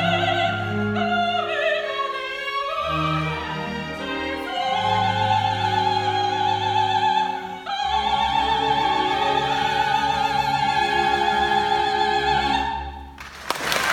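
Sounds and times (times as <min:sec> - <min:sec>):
operatic soprano singing: 0:00.0 - 0:13.1.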